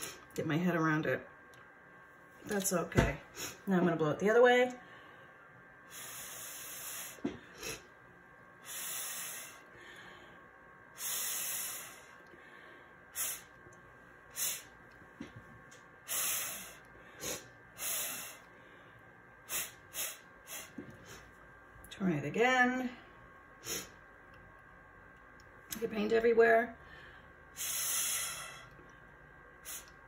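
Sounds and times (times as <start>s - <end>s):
breath puffs through a straw: 27.6s - 28.8s.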